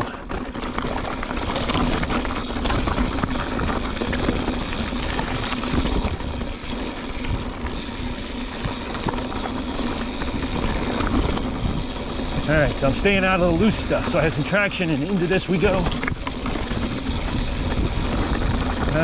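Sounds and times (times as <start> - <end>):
bike rattling: 0.0 - 19.0
tyres crunching over rock: 0.0 - 19.0
wind rushing over microphone: 9.6 - 19.0.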